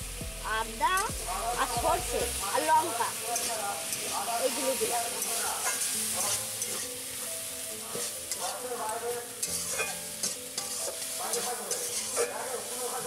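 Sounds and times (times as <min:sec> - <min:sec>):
spices sizzling in hot oil: 0:00.0 - 0:13.0
metal spatula scraping a pan: 0:02.8 - 0:13.0.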